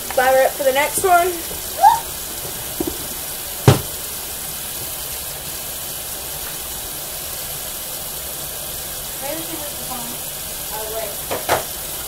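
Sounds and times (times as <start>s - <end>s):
steady hiss: 0.0s - 12.0s
faint taps: 2.4s - 3.9s
knock on tabletop: 2.4s - 3.9s.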